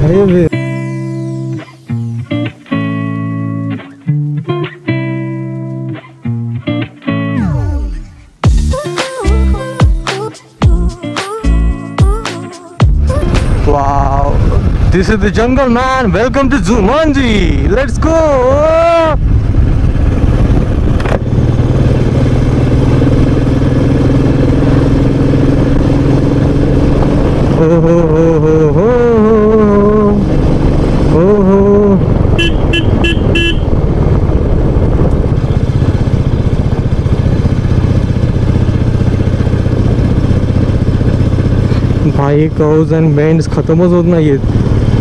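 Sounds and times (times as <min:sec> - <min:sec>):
motorcycle engine running: 0:00.0 - 0:01.6, 0:12.8 - 0:45.0
wind and road noise: 0:00.0 - 0:06.9, 0:12.9 - 0:45.0
horn beeps: 0:32.3 - 0:33.8.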